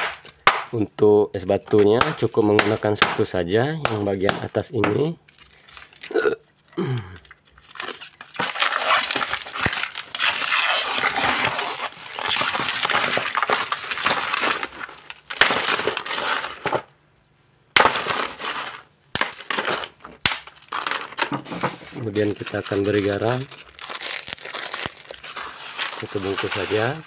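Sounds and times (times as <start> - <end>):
ice crunching and cracking: 2.0 - 16.9, 17.8 - 27.0
ice chunks clinking: 7.2 - 16.9, 17.8 - 27.0.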